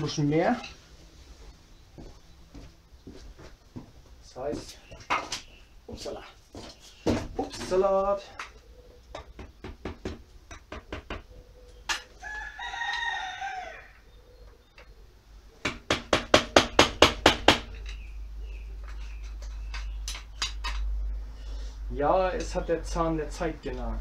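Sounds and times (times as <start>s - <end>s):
fast sharp knocks: 9.2s - 11.2s, 15.6s - 17.8s
rooster crowing: 12.1s - 14.1s.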